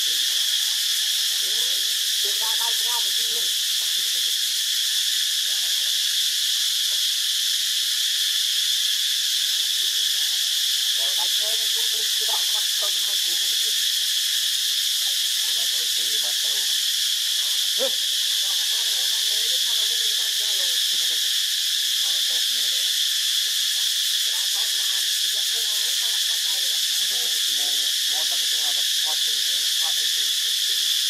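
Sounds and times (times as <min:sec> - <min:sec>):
insect chorus drone: 0:00.0 - 0:31.0
faint broken voice-like sounds: 0:17.4 - 0:21.2.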